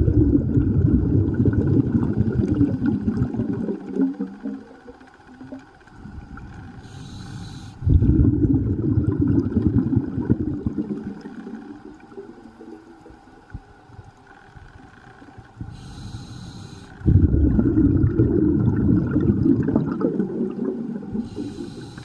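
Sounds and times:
exhaled bubbles underwater: 0.0s - 13.7s, 15.5s - 22.0s
regulator inhalation hiss: 6.8s - 7.9s, 15.7s - 17.1s, 21.1s - 22.0s.

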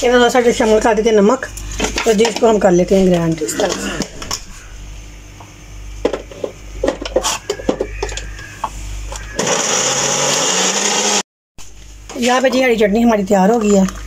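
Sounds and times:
electric food chopper whirring: 9.2s - 11.2s.

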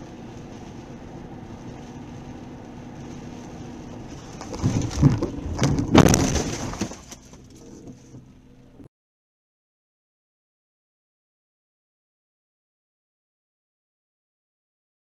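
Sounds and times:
steady rain: 0.0s - 6.7s
car road noise: 0.0s - 8.9s.

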